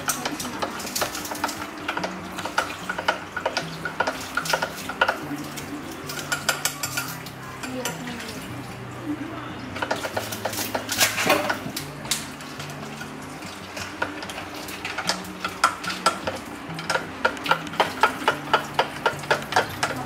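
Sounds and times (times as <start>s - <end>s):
spoon clinking against glass: 0.0s - 8.1s.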